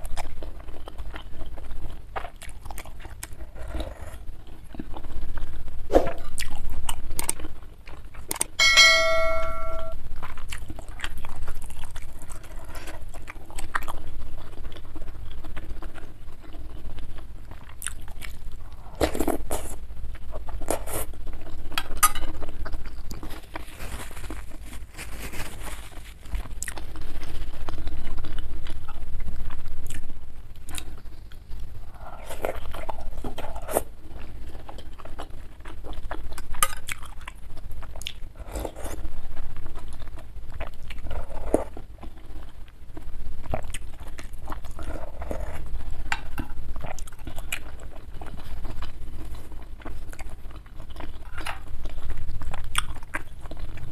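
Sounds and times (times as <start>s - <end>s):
chewing: 0.0s - 8.6s, 10.2s - 53.9s
ringing clink: 8.6s - 10.0s.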